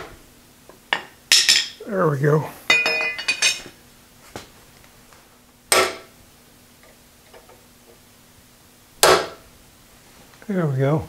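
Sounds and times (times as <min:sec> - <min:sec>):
hammer striking steel pin: 0:05.7 - 0:06.1, 0:09.0 - 0:09.4.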